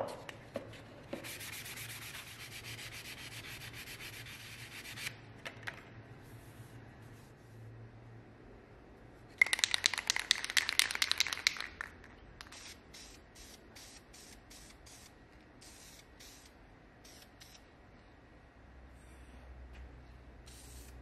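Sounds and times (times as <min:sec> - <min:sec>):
spray can mixing ball rattling: 0:09.4 - 0:16.5
spray can hissing bursts: 0:12.4 - 0:17.6, 0:20.5 - 0:21.0.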